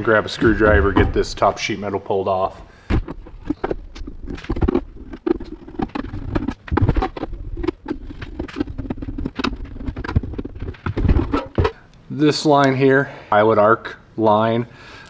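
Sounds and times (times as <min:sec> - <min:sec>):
metal case clicks and scrapes: 0:03.0 - 0:11.8.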